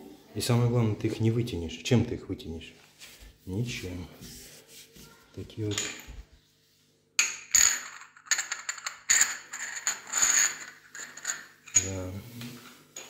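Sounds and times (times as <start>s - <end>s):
hand scraping across floor tiles: 2.8s - 5.3s.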